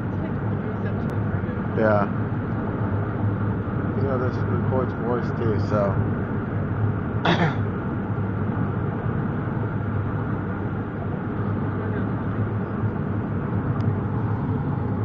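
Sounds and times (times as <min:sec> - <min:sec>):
car cabin road and engine hum: 0:00.0 - 0:15.0
person clearing throat: 0:07.2 - 0:07.7.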